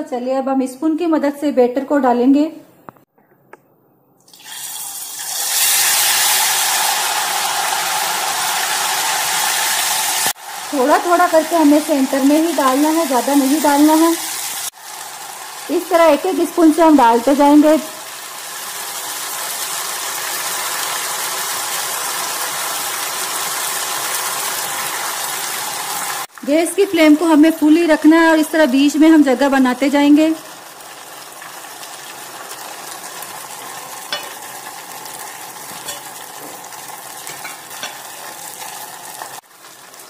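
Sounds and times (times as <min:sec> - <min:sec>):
batter pouring into oil: 0:04.3 - 0:11.5
batter sizzling in hot oil: 0:04.3 - 0:27.2, 0:27.9 - 0:40.0.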